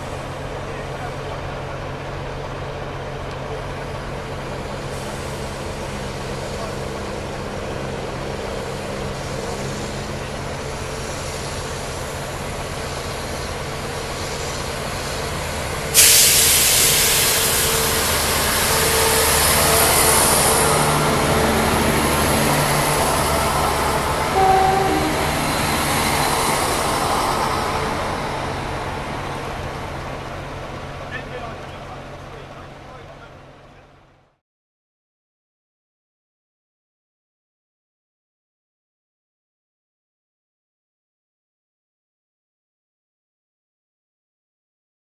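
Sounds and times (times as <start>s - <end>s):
diesel train engine hum: 0.0s - 34.4s
loud train hiss: 3.8s - 31.8s.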